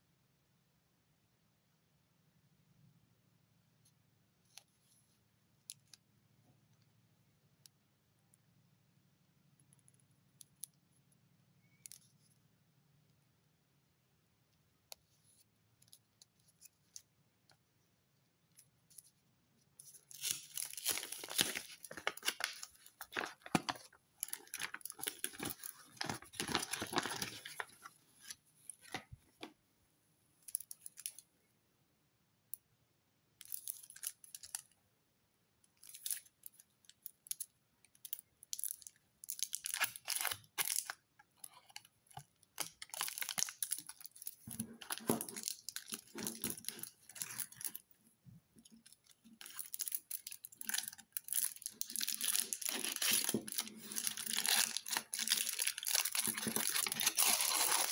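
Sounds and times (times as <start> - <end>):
foil wrapping crinkling: 20.1 - 27.8, 49.5 - 57.9.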